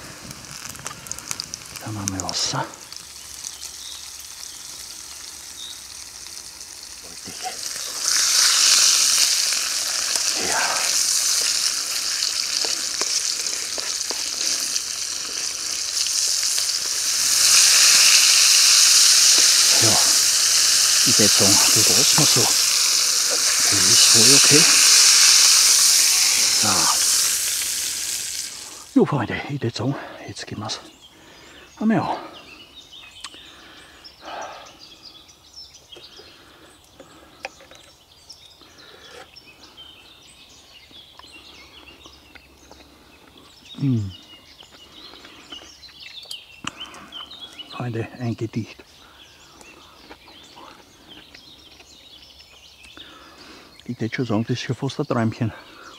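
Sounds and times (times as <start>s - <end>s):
potatoes sizzling in a pan: 0.0s - 29.0s
birds singing: 0.9s - 55.9s.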